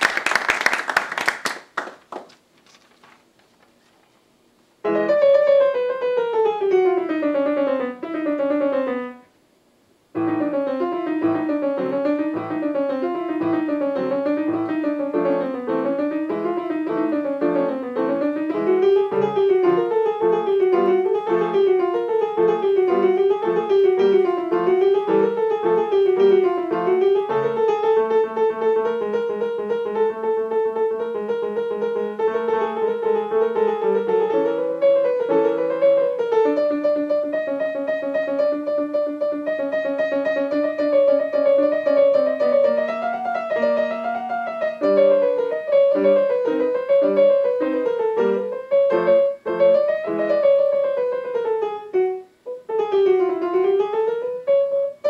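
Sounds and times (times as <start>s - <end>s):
audience applause: 0.0s - 2.4s
grand piano playing: 4.8s - 9.3s, 10.2s - 55.0s.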